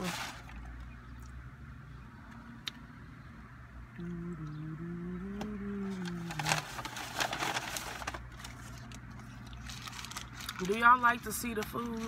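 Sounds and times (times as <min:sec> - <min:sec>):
paper wrappers rustling: 0:00.0 - 0:00.8, 0:05.8 - 0:12.0
person humming: 0:04.0 - 0:06.7.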